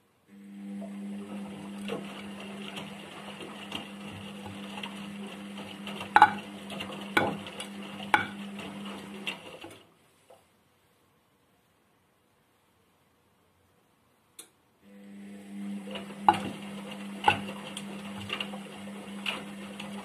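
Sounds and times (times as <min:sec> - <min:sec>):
washing machine motor humming: 0:00.3 - 0:09.8, 0:14.8 - 0:20.0.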